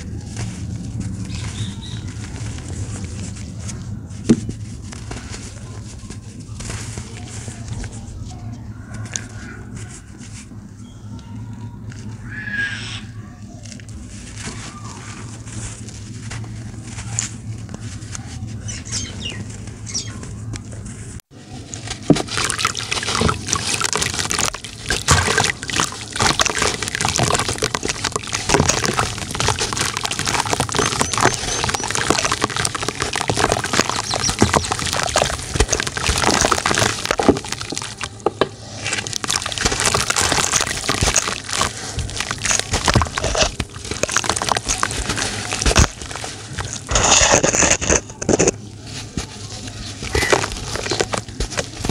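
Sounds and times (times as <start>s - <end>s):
hands crumbling dry dirt: 21.6s - 51.9s
wet dirt crumbling: 21.6s - 51.9s
pieces splashing into water: 22.0s - 47.9s.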